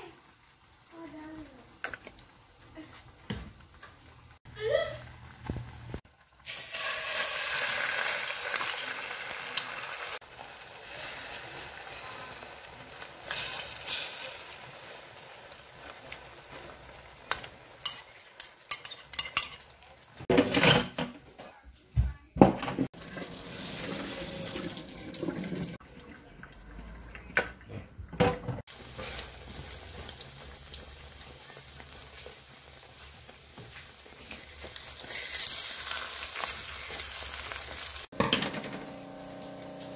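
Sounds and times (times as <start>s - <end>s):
egg sizzling in a hot pan: 0.0s - 19.2s, 23.0s - 25.6s, 28.7s - 38.2s
water poured into a steel sink: 6.4s - 9.6s, 23.0s - 25.8s
pans and utensils clinking: 16.5s - 21.6s, 33.3s - 39.9s.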